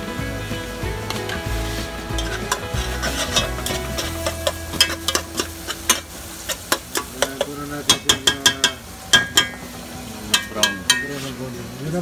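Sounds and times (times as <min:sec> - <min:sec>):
onion sizzling in oil: 0:00.0 - 0:12.0
spoon scraping and knocking pot: 0:02.1 - 0:09.6, 0:10.3 - 0:11.4.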